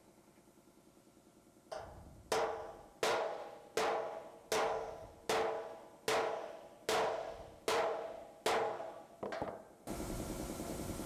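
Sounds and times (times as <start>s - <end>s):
hammer striking sheet steel: 1.7s - 9.6s.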